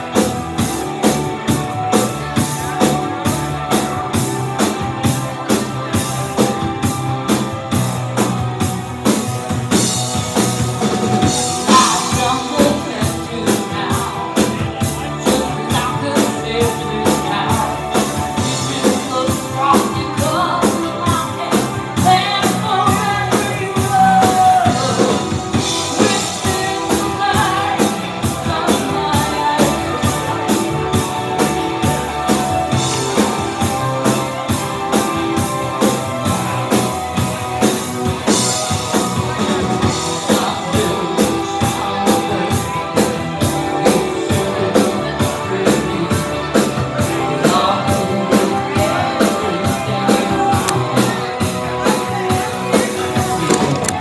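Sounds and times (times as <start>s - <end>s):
bass guitar: 0.0s - 54.0s
drum kit beat: 0.0s - 54.0s
electric guitar: 0.0s - 54.0s
woman singing: 11.6s - 25.2s, 25.9s - 30.7s.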